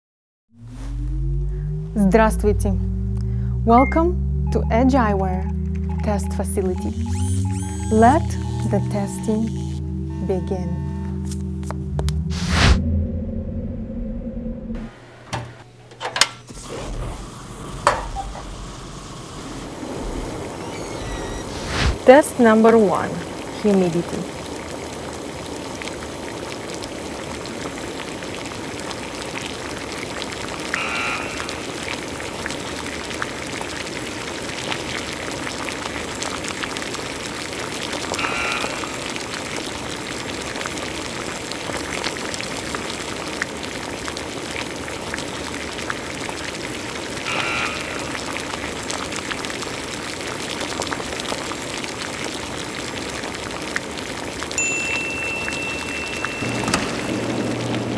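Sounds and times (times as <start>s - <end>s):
steady rain-like hiss: 16.4s - 57.9s.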